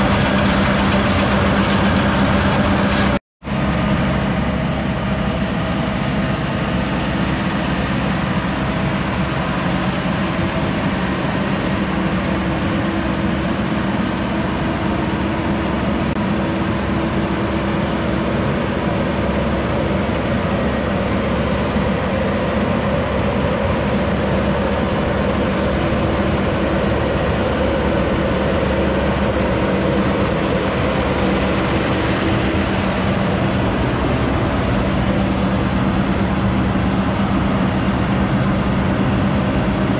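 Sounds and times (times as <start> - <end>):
tractor engine: 0.0 - 10.4, 22.9 - 39.9
grape harvester engine running: 0.0 - 39.9.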